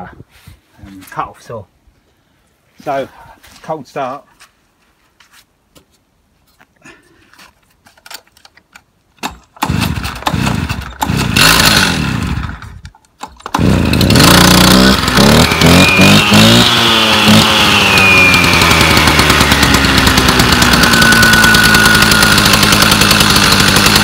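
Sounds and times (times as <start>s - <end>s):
pull-starting engine: 9.2s - 24.0s
cut-off saw engine running: 9.7s - 12.6s, 13.5s - 24.0s.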